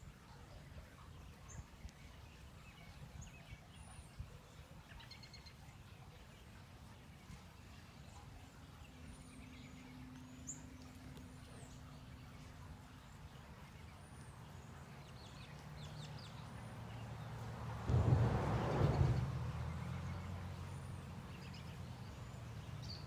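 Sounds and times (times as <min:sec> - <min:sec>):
low rumble: 0:17.7 - 0:20.6.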